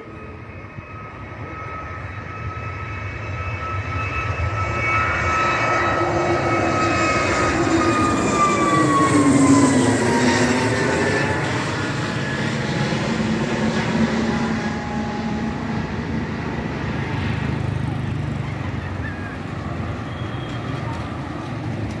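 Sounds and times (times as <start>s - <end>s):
jet engine rumble: 0.0s - 22.0s.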